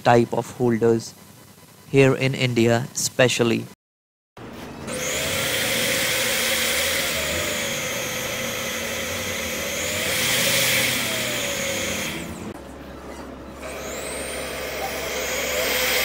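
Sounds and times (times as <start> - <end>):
drill press motor whine: 4.4 - 16.0.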